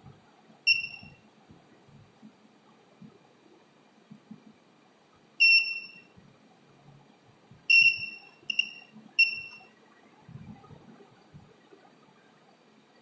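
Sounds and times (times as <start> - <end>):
electronic buzzer beeping: 0.7 - 1.2, 5.4 - 6.1, 7.7 - 9.7.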